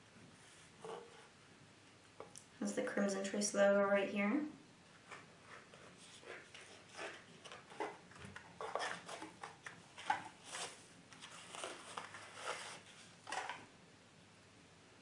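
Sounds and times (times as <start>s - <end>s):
paper wrapping rustling: 5.0s - 13.7s.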